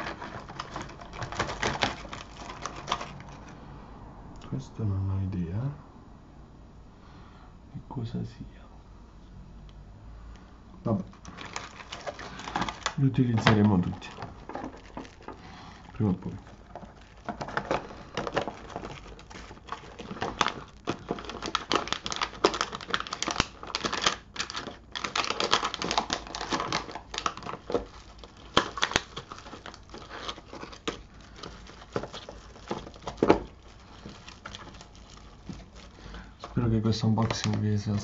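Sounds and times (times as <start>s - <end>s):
plastic bags crinkling: 0.0s - 3.6s, 10.8s - 38.0s.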